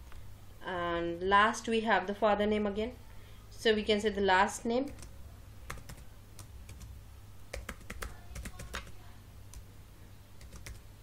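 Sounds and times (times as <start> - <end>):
low steady hum: 0.0 - 11.0
computer keyboard typing: 4.9 - 9.6, 10.4 - 10.9.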